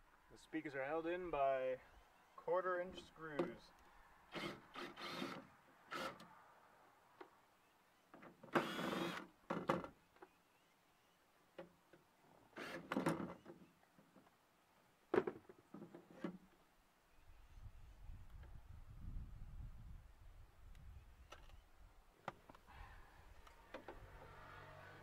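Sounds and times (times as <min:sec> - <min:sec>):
cordless drill spinning: 0:04.3 - 0:06.2, 0:08.6 - 0:09.2, 0:12.6 - 0:12.9.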